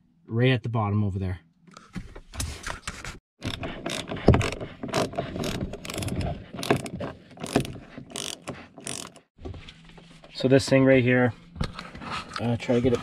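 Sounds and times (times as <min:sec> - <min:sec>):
socket ratchet clicking: 0:05.0 - 0:09.2.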